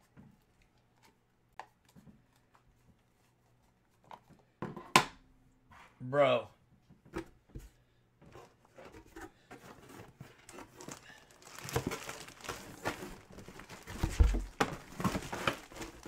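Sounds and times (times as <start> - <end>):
cardboard box handled: 8.4 - 16.0
plastic bag crinkling: 10.4 - 16.0.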